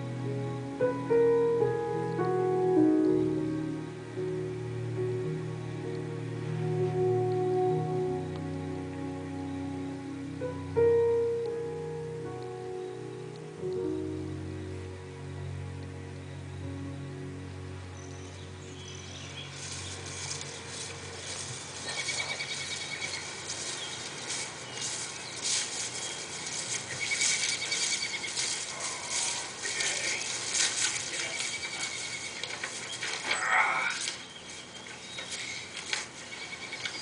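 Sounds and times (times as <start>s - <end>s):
cats scuffling on carpet: 19.6s - 37.0s.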